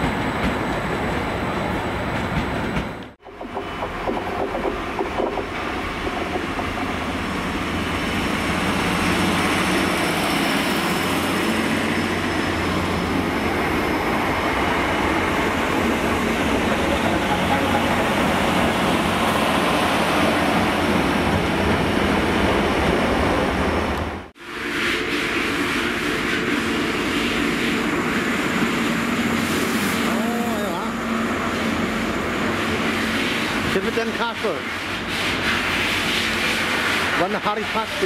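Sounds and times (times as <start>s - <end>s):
train wheels rumbling: 0.0s - 24.3s.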